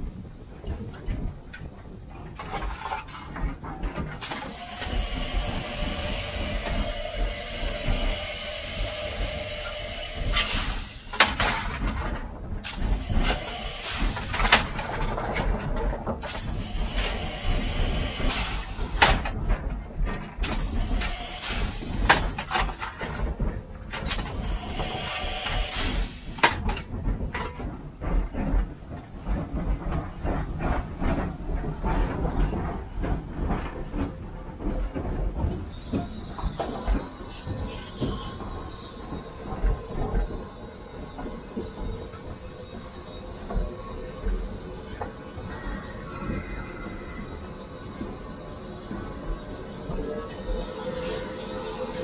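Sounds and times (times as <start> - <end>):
steam hissing: 4.2 - 19.5, 20.4 - 27.2.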